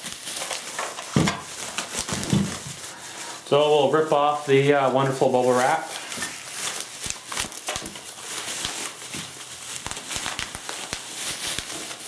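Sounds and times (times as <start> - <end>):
bubble wrap crinkling and crackling: 0.0 - 12.0.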